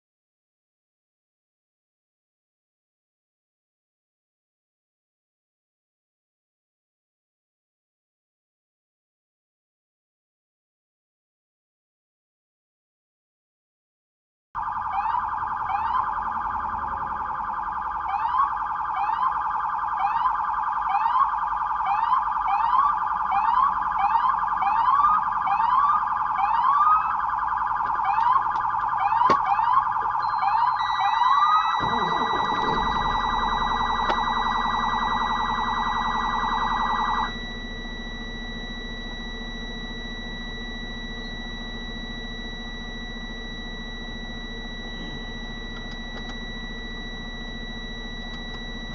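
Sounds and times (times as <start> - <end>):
police sirens whooping: 14.6 - 48.9
low steady hum: 15.5 - 48.9.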